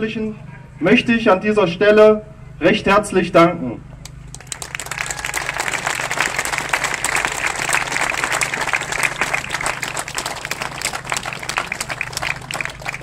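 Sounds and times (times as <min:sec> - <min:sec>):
crowd applauding: 0:04.0 - 0:13.0.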